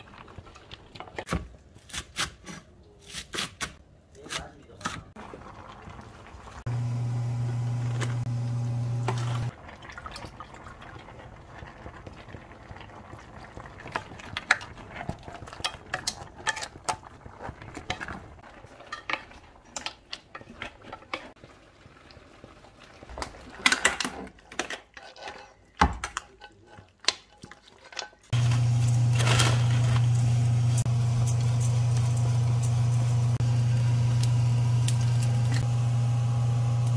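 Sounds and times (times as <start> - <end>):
loud electric hum: 6.7 - 9.5, 28.4 - 36.9
pan emptied into metal tray: 27.9 - 33.0.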